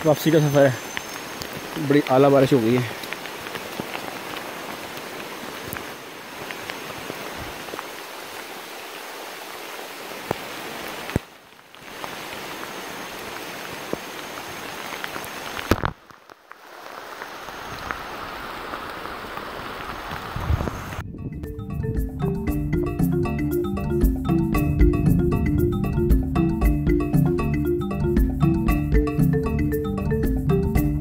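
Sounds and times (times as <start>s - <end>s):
heavy rain on foliage: 0.0s - 21.0s.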